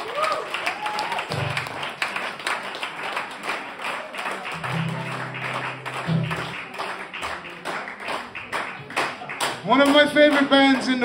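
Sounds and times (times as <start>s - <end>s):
acoustic guitars strummed and picked: 4.6s - 6.7s.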